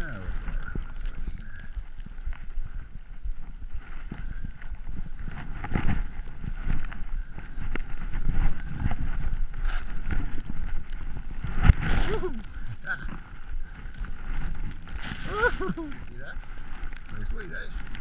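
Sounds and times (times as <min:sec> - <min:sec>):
wind on camera microphone: 0:00.0 - 0:18.0
skis swishing through powder snow: 0:11.2 - 0:13.1, 0:13.9 - 0:16.4.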